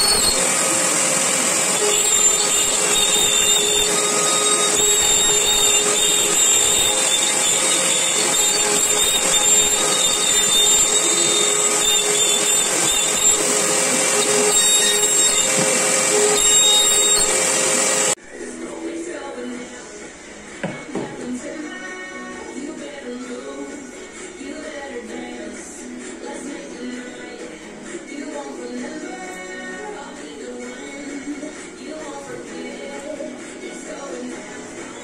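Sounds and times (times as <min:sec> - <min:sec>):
router spindle milling with whine: 0:00.0 - 0:18.2
vacuum hose sucking: 0:00.0 - 0:18.2.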